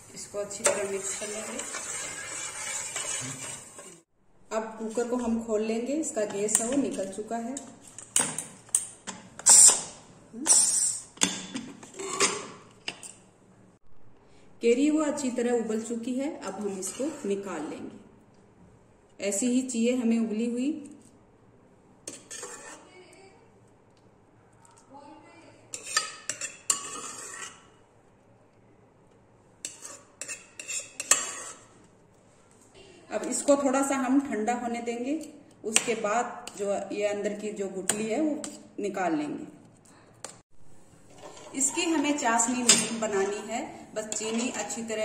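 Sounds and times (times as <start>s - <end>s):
pressure cooker lid scraping: 0.6s - 4.0s, 41.1s - 43.5s.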